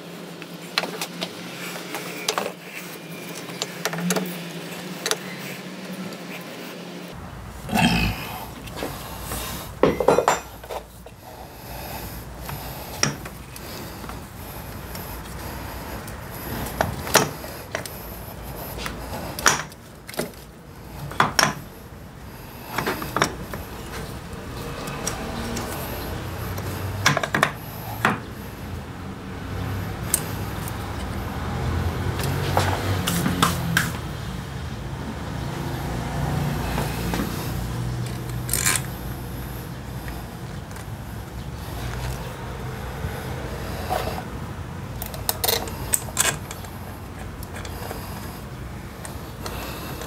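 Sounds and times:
metallic clicks and knocks of tools: 0:45.0 - 0:48.0.

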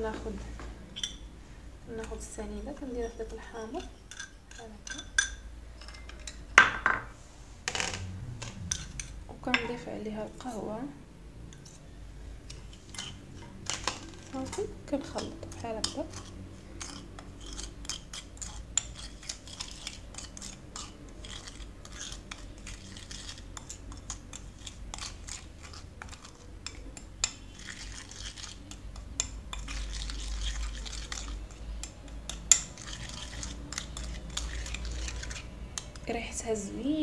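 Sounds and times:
spoon scraping a ceramic plate: 0:01.0 - 0:01.3, 0:02.0 - 0:07.0, 0:12.5 - 0:36.2.

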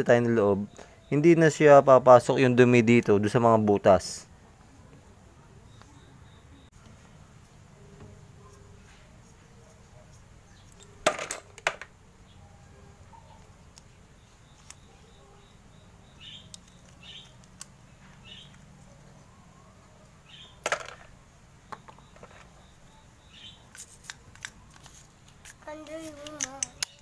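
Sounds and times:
faint low hum: 0:00.0 - 0:27.0
small metal parts scraping: 0:23.7 - 0:27.0
sharp clicks: 0:25.5 - 0:27.0.

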